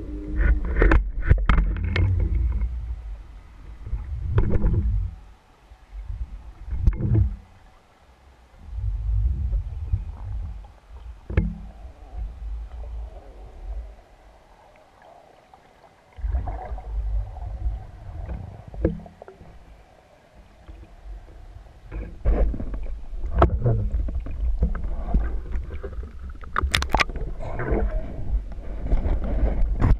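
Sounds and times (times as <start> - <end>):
muffled underwater rumble: 0.0 - 29.9
water splashes: 5.9 - 29.9.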